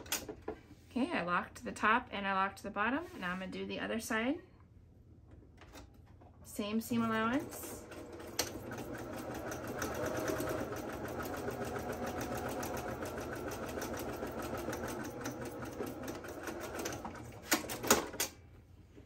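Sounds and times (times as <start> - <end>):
sewing machine stitching: 7.0 - 18.3.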